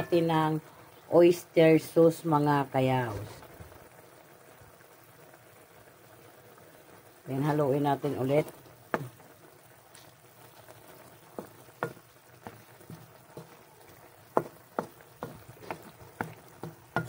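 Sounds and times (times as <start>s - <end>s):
faint sauce sizzle: 0.0s - 17.0s
spatula knocking and scraping wok: 8.9s - 9.2s, 10.8s - 17.0s.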